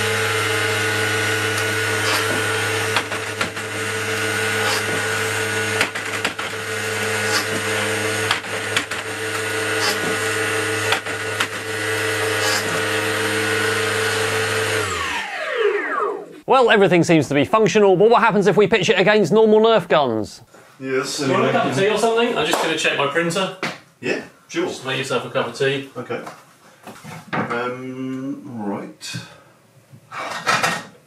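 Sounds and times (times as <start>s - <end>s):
motor rollers whirring: 0.0s - 16.4s.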